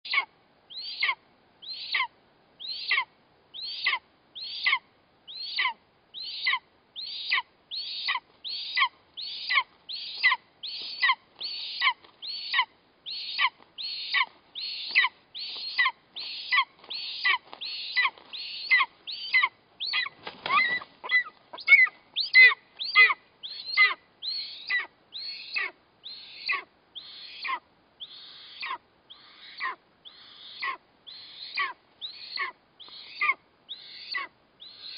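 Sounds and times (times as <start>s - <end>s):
eagle chick begging calls: 0.1s - 34.9s
wings rustling: 13.2s - 23.1s.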